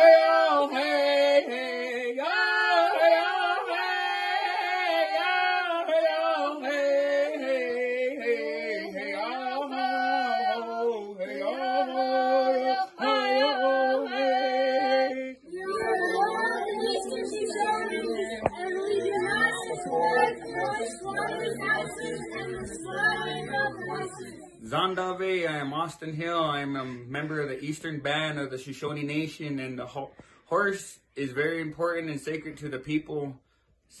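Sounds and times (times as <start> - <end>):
group singing in unison: 0.0 - 24.7
jumble of voices: 15.6 - 24.7.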